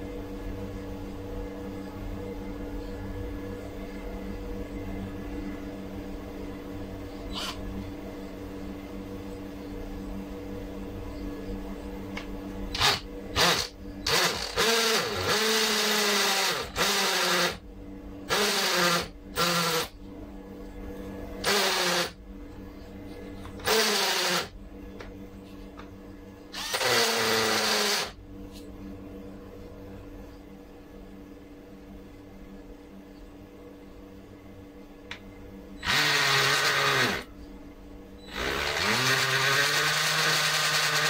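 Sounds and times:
cordless drill boring into concrete: 12.8 - 17.6, 18.3 - 19.9, 21.4 - 22.2, 23.6 - 24.5, 26.6 - 28.2, 35.8 - 37.3, 38.3 - 41.0.

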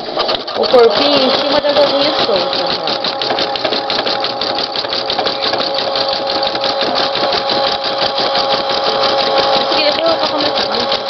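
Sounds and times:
embroidery machine stitching: 0.0 - 11.0.

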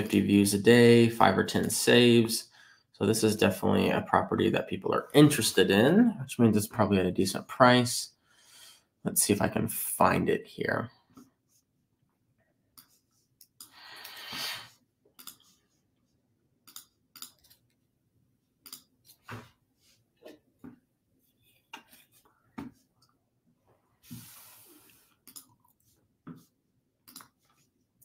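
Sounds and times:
computer mouse clicks: 15.2 - 15.5, 16.6 - 17.6, 18.6 - 18.9, 25.2 - 25.7, 27.0 - 27.4
keyboard typing: 15.2 - 15.6, 27.0 - 27.5.

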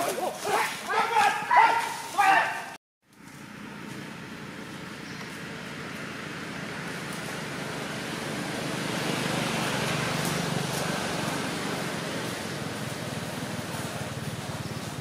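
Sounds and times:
motor vehicle passing: 3.1 - 15.0.

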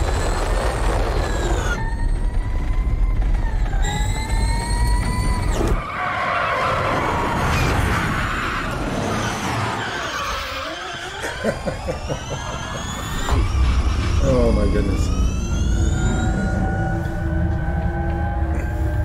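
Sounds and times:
electric motors whining: 0.0 - 6.0, 6.6 - 19.0
tyres screeching: 3.6 - 17.4.

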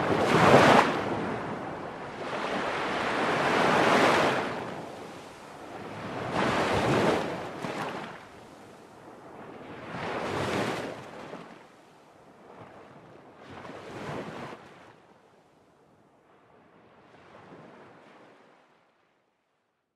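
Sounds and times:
waves washing in: 0.0 - 15.1.

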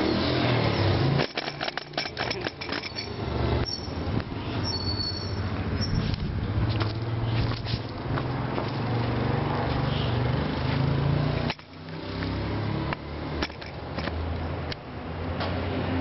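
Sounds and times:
sharp clicks: 11.5 - 12.0.

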